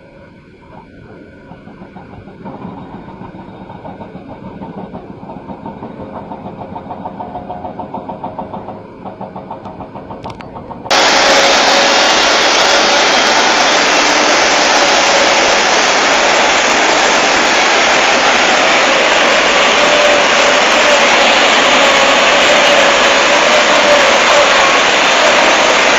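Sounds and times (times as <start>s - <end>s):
excavator diesel engines throbbing: 0.0s - 25.9s
flooded river rushing: 10.9s - 25.9s.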